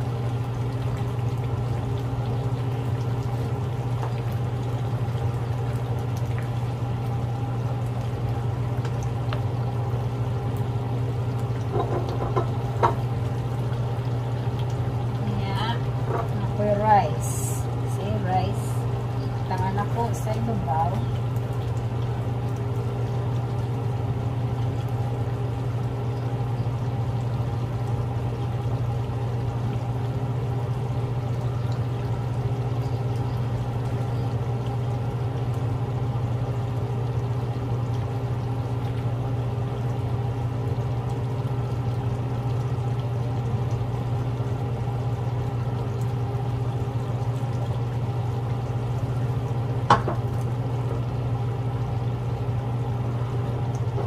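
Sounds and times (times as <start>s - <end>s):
low machine hum: 0.0s - 54.0s.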